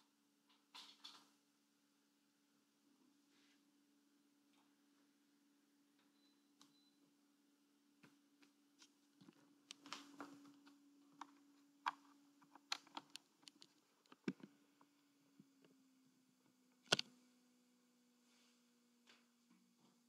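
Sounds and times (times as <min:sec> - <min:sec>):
faint clicks and light knocks: 0:08.0 - 0:15.8.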